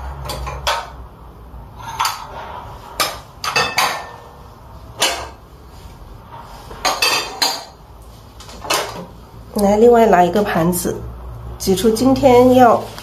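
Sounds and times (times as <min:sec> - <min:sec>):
porcelain dishes clinking: 0:03.0 - 0:04.4, 0:06.8 - 0:07.8.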